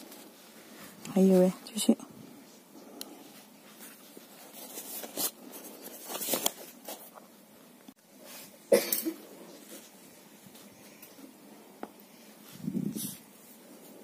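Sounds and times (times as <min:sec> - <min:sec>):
tissue paper and cloth rustling: 0:03.2 - 0:07.2.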